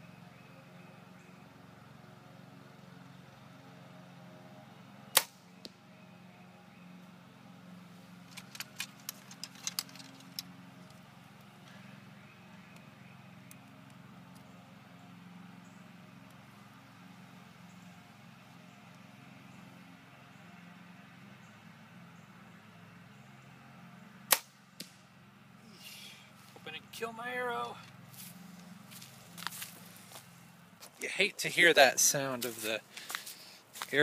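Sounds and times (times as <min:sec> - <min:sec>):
arrow striking target: 0:05.1 - 0:05.4, 0:24.3 - 0:25.0
light clicks of arrows handled: 0:08.2 - 0:11.8.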